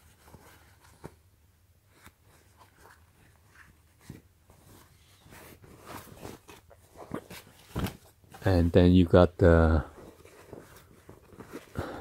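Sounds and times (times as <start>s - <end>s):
trousers rustling: 1.9s - 8.7s, 9.6s - 12.0s.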